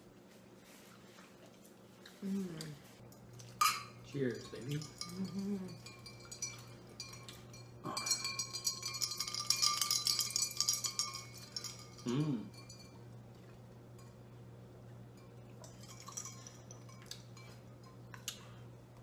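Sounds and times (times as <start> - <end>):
person humming: 2.2 - 2.9, 5.1 - 5.8, 12.0 - 12.5
small glass clinks: 3.6 - 13.1, 15.2 - 18.2
drinking glasses clinking: 3.6 - 13.2
glass ringing: 3.6 - 13.2.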